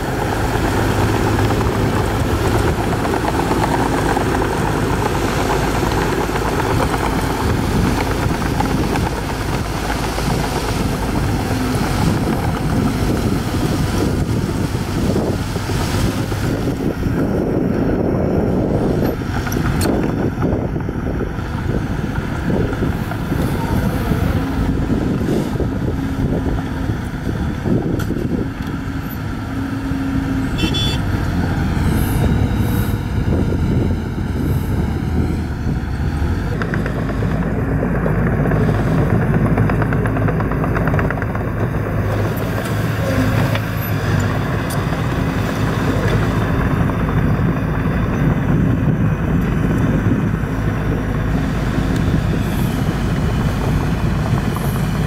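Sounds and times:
bulldozer diesel engine running: 0.0 - 55.0.

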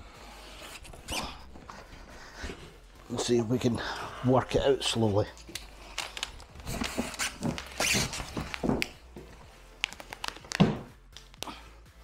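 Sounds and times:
thuds: 10.6 - 11.0.

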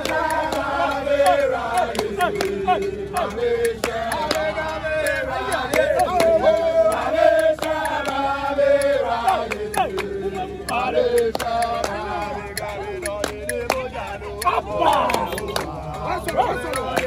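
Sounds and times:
men singing a chant: 0.0 - 17.0.

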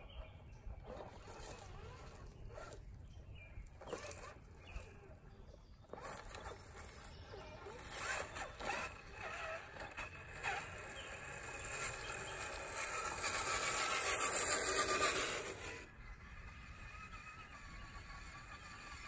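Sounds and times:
electric motor whining: 3.8 - 5.2, 5.8 - 19.0.

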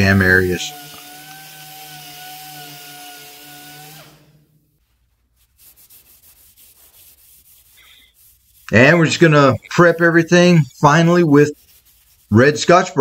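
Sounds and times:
air sander whining: 0.0 - 4.6.

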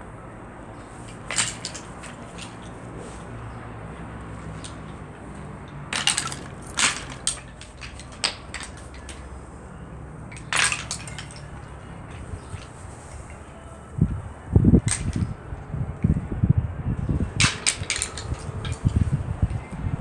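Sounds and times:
horns clattering together: 1.0 - 9.5, 10.2 - 13.7, 14.8 - 15.3, 17.4 - 19.6.

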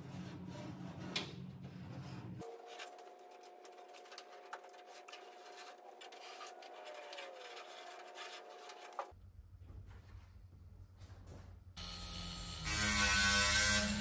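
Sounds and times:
marker pen scratching on metal: 2.7 - 9.1.

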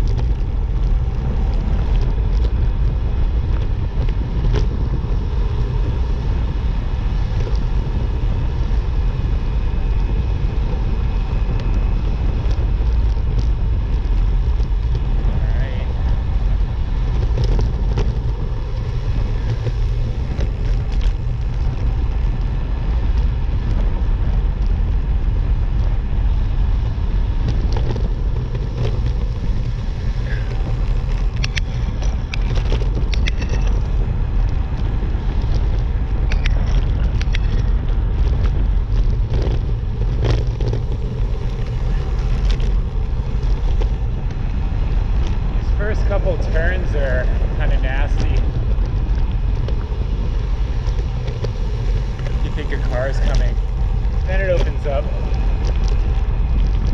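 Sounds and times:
road rumble: 0.0 - 56.9
wind rush over microphone: 0.0 - 56.9
small ticks and knocks: 30.3 - 34.6, 35.3 - 44.0.

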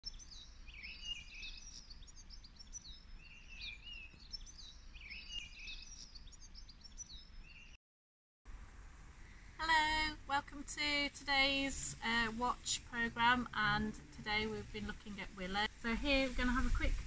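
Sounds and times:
songbird warbling: 0.1 - 7.7
low background rumble: 8.5 - 17.0.

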